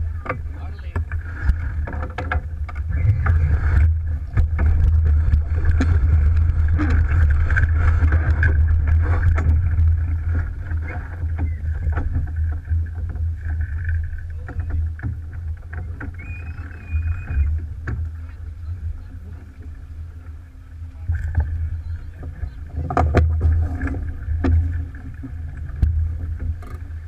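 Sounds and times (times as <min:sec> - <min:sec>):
water rushing along hull: 0:00.0 - 0:27.0
wind rumbling on microphone: 0:00.0 - 0:27.0
clicks and splashes: 0:00.2 - 0:13.1.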